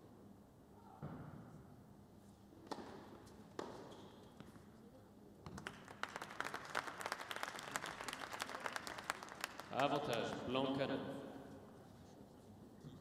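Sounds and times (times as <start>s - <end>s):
tennis ball hits: 2.7s - 3.9s
crowd applause: 5.6s - 10.3s.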